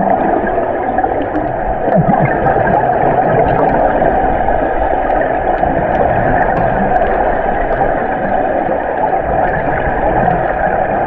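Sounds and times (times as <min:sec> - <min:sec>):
muffled underwater noise: 0:00.0 - 0:11.0
faint clicks: 0:05.0 - 0:08.0.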